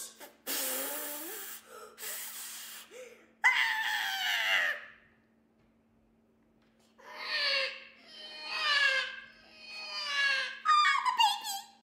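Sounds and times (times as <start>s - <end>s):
woman groaning and straining: 7.0s - 10.7s.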